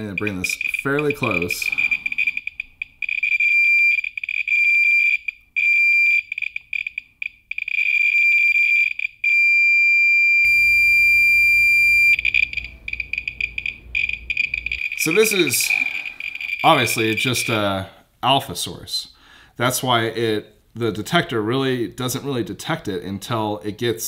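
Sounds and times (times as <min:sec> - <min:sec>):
radiation detector beeper chirping: 0:10.4 - 0:17.6.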